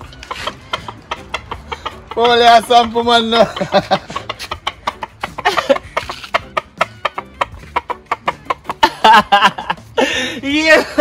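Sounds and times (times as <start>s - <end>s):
chickens clucking: 0.0s - 8.8s.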